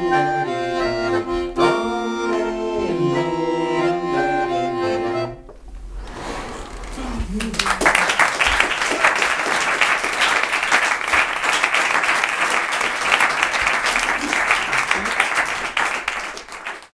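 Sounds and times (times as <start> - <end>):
audience applauding: 6.8 - 16.9.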